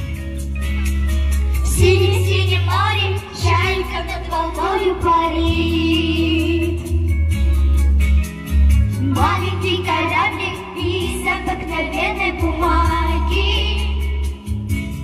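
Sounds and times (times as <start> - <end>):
pop backing track: 0.0 - 15.0
children's group singing: 1.7 - 6.8, 9.0 - 14.1.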